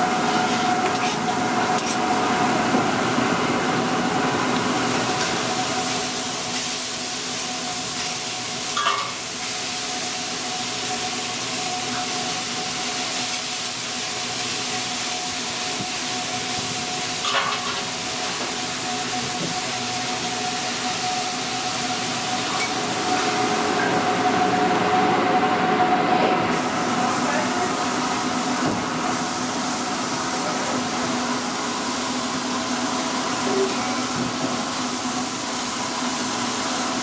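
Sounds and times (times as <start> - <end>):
hot griddle hissing: 4.8 - 24.1, 26.5 - 30.7.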